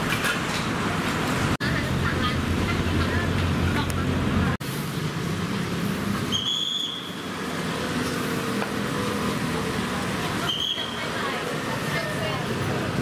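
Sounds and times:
steady traffic noise: 0:00.0 - 0:13.0.

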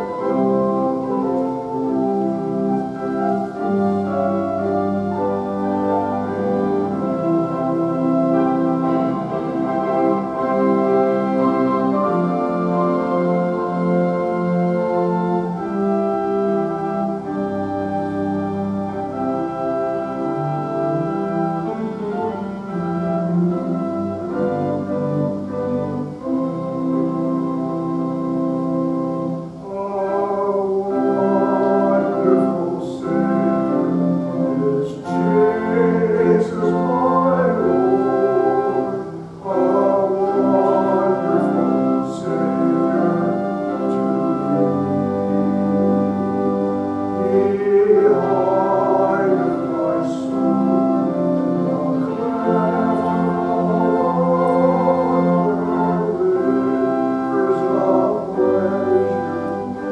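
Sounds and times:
organ chords: 0:00.0 - 0:59.9
person singing with vibrato: 0:29.4 - 0:59.9.

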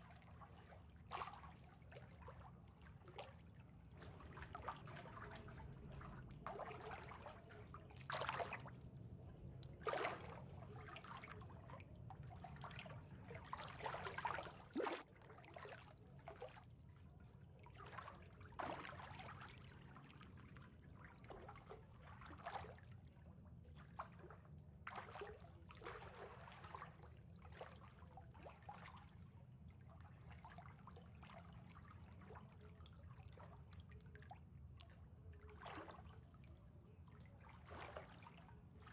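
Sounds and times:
small water splashes: 0:00.0 - 0:23.1, 0:23.7 - 0:38.9
water trickling and lapping: 0:00.0 - 0:38.9
low steady hum: 0:03.6 - 0:18.6.

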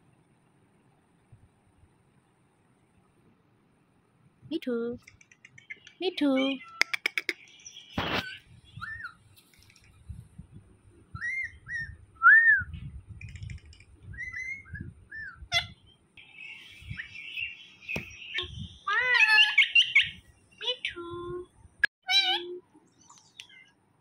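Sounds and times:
parakeet whistled chirps: 0:14.2 - 0:15.7.

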